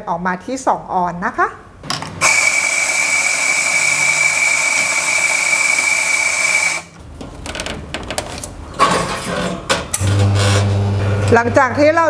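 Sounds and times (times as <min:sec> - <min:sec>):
coffee grinder whining: 0:02.2 - 0:07.0, 0:10.0 - 0:11.4.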